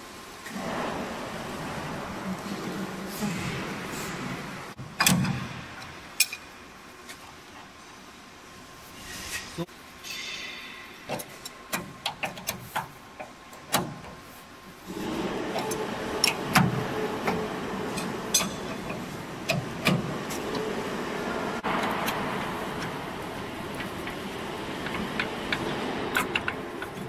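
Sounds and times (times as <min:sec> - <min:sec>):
wrench clicking on metal bolts: 0:11.1 - 0:14.2, 0:18.0 - 0:20.0, 0:24.8 - 0:27.0
machine humming: 0:14.7 - 0:27.0.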